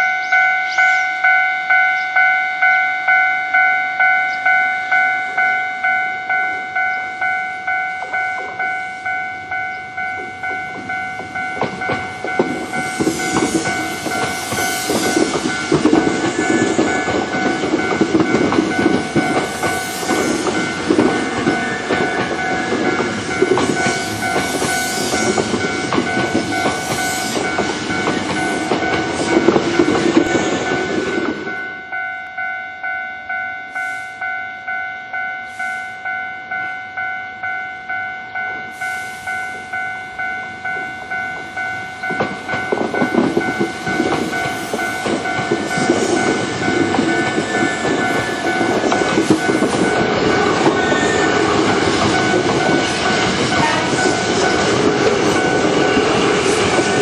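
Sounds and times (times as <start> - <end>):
level crossing bell ringing: 0.0 - 57.0
train clattering over rail joints: 9.8 - 31.7, 40.6 - 57.0
wheels squealing: 44.3 - 57.0.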